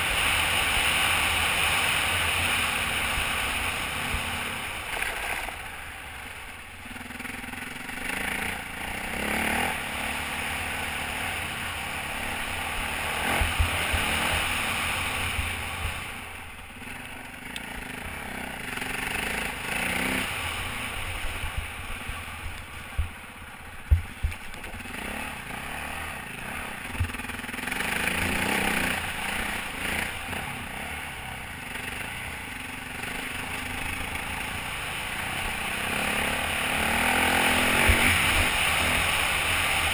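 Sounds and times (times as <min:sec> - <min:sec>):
dirt bike engine revving: 0:00.0 - 0:23.2, 0:23.8 - 0:39.9
sharp low thumps: 0:23.8 - 0:24.5.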